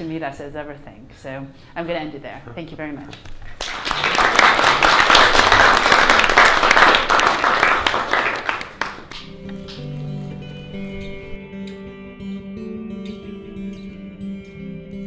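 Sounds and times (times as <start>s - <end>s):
audience applauding: 3.4s - 9.8s
closing music with held notes: 8.8s - 15.0s.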